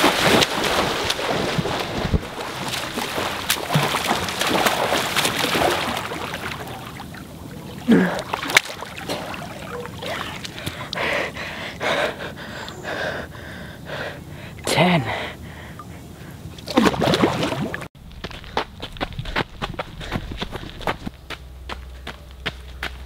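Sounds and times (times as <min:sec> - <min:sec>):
swimmer splashing: 0:00.0 - 0:11.0, 0:16.6 - 0:17.9
panting breaths: 0:10.0 - 0:16.4, 0:19.2 - 0:20.8.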